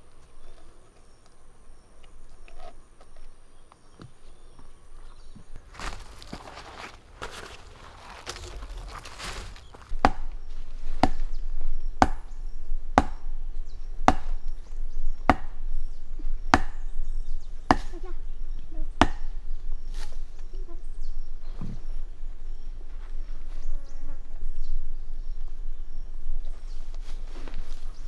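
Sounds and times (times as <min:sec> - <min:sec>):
rope rustling: 0:05.6 - 0:10.0
sharp chopping blows: 0:09.9 - 0:10.4, 0:11.0 - 0:11.3, 0:12.0 - 0:13.3, 0:14.0 - 0:14.5, 0:15.2 - 0:15.6, 0:16.5 - 0:16.9, 0:17.7 - 0:18.1, 0:19.0 - 0:19.4.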